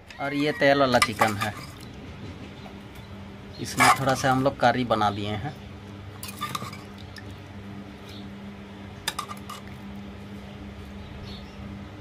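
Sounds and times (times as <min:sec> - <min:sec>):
ladle clinking against pot: 0:00.4 - 0:01.8.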